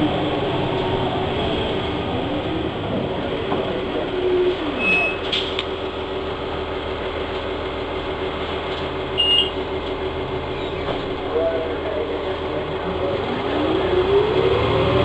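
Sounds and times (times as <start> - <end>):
bus engine drone: 0.0 - 15.0
short high squeaks: 4.8 - 5.4.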